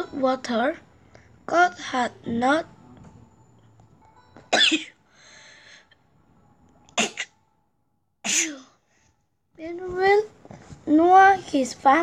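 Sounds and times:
child coughing: 4.5 - 5.0, 7.0 - 7.4, 8.3 - 8.8.

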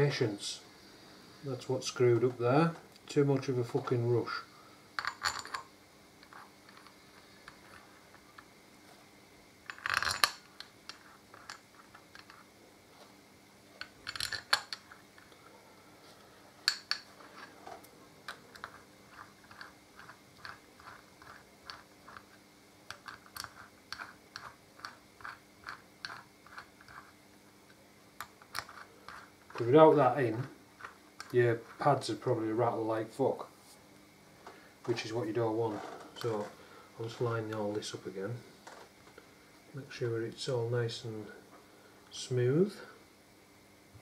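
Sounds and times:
metal parts clinking: 5.0 - 7.0, 9.7 - 12.4, 13.8 - 15.0.

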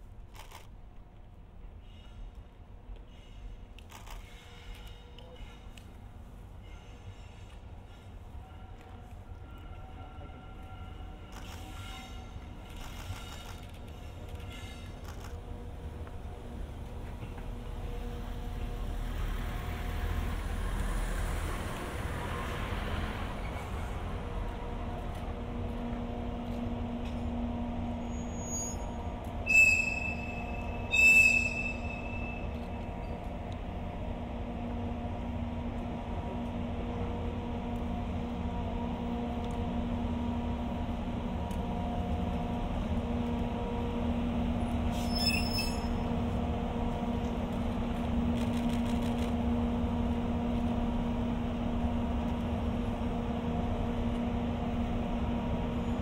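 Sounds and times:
high-pitched whistle toots: 29.5 - 32.2.

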